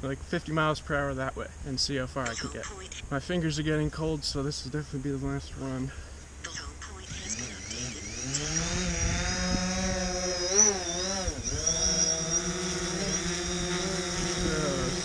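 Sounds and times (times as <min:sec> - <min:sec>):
drone propellers buzzing: 0:05.6 - 0:15.0.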